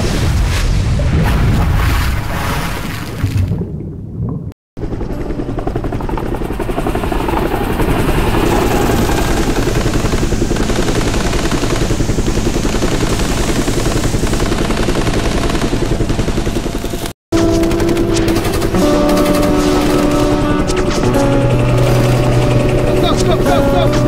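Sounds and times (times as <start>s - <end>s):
helicopter engine noise: 4.8s - 24.0s
helicopter rotor blades beating: 4.8s - 24.0s.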